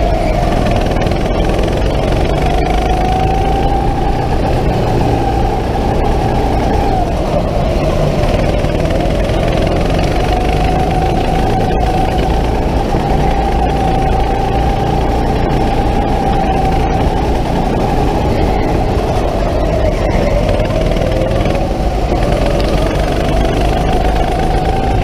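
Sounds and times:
go-kart motor whine: 0.0 - 25.0.

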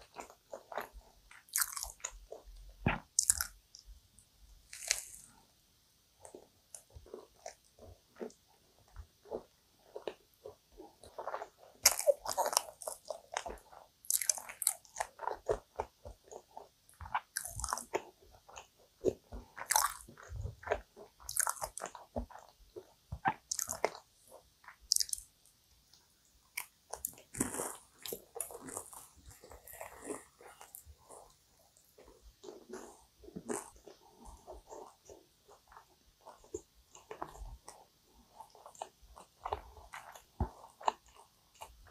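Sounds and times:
chewing: 0.0 - 3.8, 4.7 - 5.3, 6.2 - 25.3, 26.5 - 41.9
crunchy pastry bites: 0.1 - 3.6, 4.7 - 5.3, 11.1 - 16.4, 17.0 - 22.5, 23.2 - 24.0, 24.9 - 25.3.

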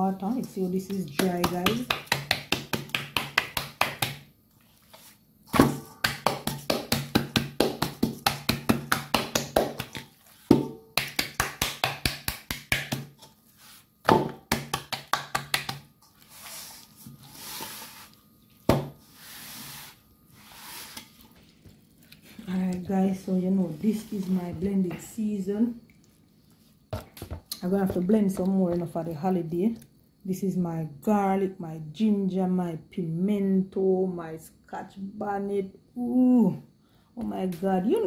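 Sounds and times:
rubbing and squishing meat: 0.0 - 5.4, 6.1 - 26.9
hands slapping meat: 0.9 - 4.2, 5.6 - 13.2, 14.0 - 15.9.

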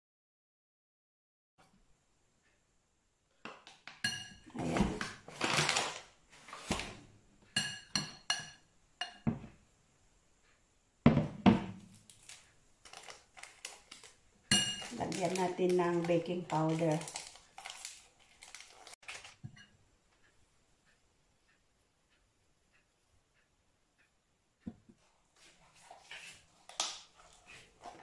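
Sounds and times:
objects thudding on counter: 9.2 - 9.6, 11.1 - 11.8.

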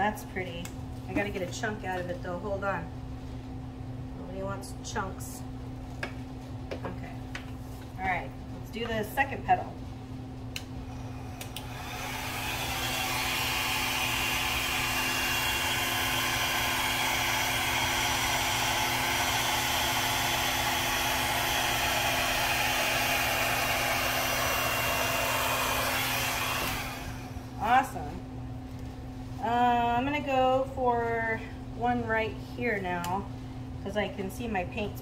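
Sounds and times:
hair dryer running: 10.6 - 28.1.

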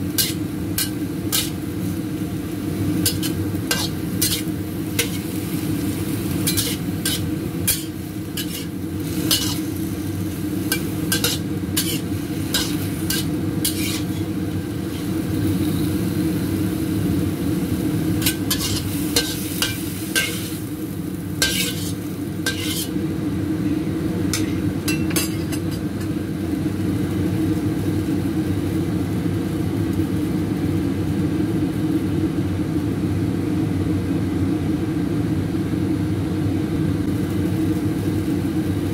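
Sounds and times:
metal spatula scraping wok: 0.1 - 2.0, 2.9 - 15.3, 18.2 - 20.7, 21.4 - 23.0, 24.3 - 26.1.

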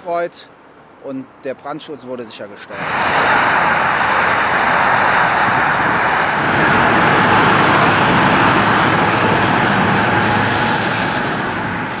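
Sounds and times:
cars passing on wet road: 2.7 - 12.0.

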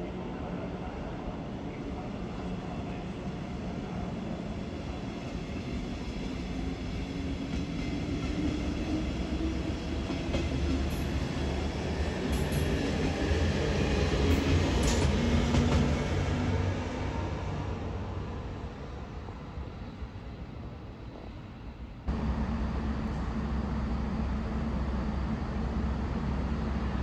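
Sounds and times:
train rolling past: 2.2 - 27.0
train wheels clicking: 14.3 - 15.9.

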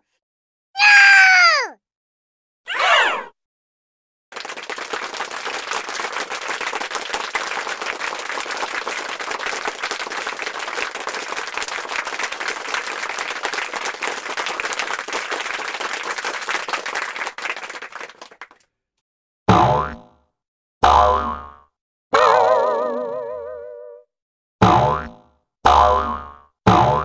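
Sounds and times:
audience applause: 4.3 - 18.6.

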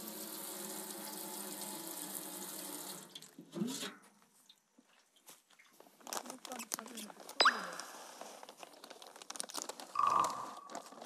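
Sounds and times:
tap water running into metal basin: 0.0 - 3.9.

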